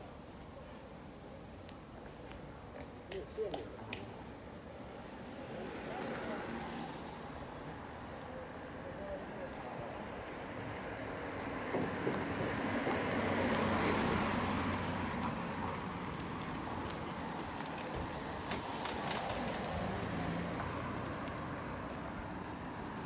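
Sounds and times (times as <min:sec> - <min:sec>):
road traffic: 0:00.0 - 0:23.0.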